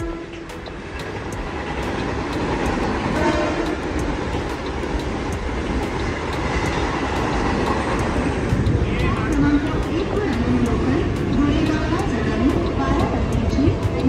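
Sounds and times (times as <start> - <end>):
faint train horn: 0.0 - 0.8, 3.1 - 4.0
train rumble and wheel clatter: 0.0 - 14.0.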